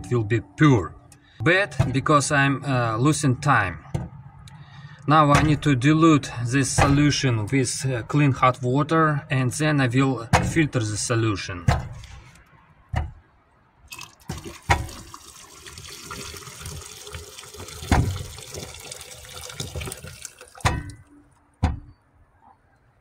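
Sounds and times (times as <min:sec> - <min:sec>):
sharp knocks: 0:06.8 - 0:07.2, 0:12.9 - 0:13.2, 0:21.6 - 0:22.0
water pouring into plastic beaker: 0:13.9 - 0:20.7.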